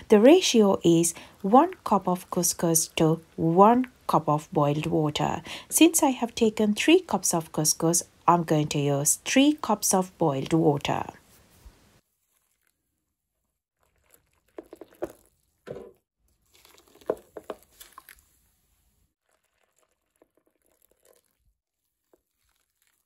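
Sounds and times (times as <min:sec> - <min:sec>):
water poured onto couscous: 0:12.2 - 0:12.8, 0:13.8 - 0:15.3, 0:16.4 - 0:18.4, 0:19.2 - 0:23.0.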